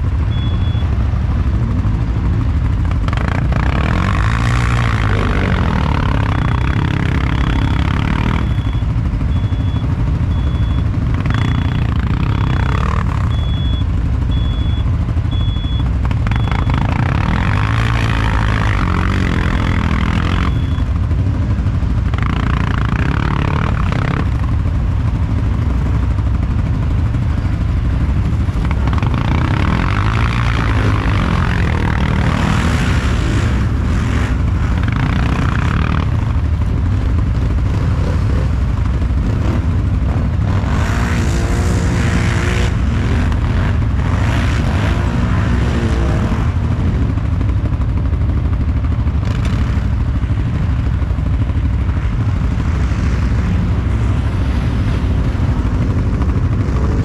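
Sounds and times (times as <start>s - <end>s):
quad bike engine drone: 0.0s - 57.0s.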